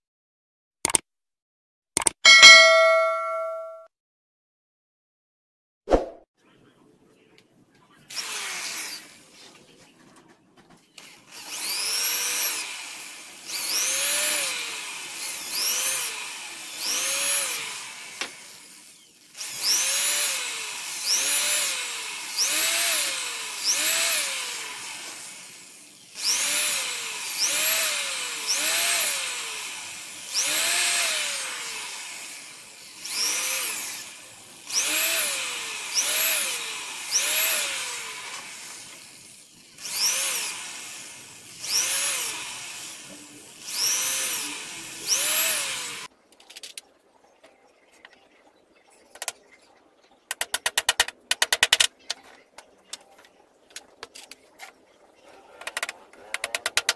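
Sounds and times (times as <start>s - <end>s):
electric drill whining: 8.1s - 9.1s, 11.0s - 46.1s.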